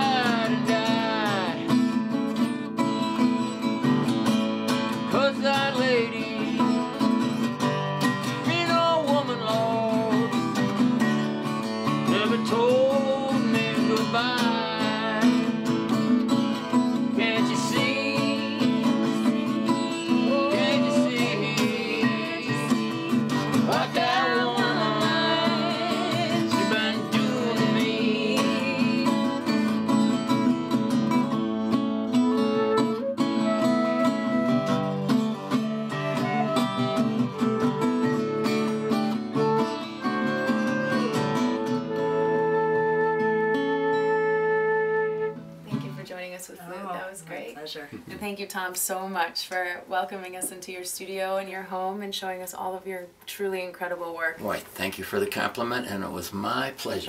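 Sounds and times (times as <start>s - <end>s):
person singing: 0.0s - 2.0s, 5.0s - 7.0s, 8.4s - 10.4s, 12.1s - 15.6s, 17.1s - 29.9s
acoustic guitar strumming: 0.0s - 46.3s
flute melody: 31.1s - 45.8s.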